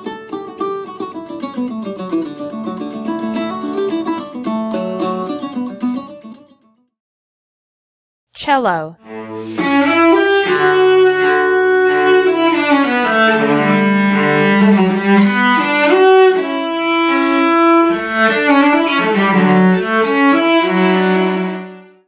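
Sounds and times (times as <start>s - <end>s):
bowed cello melody: 9.0s - 21.8s.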